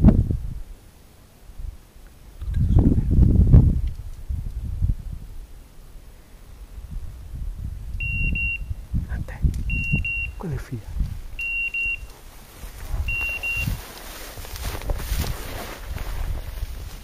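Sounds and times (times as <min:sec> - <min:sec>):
low wind rumble: 0:00.0 - 0:17.0
high double beeps: 0:08.0 - 0:08.8, 0:09.7 - 0:10.6, 0:11.4 - 0:12.1, 0:13.1 - 0:13.8
rustling on microphone: 0:08.8 - 0:17.0.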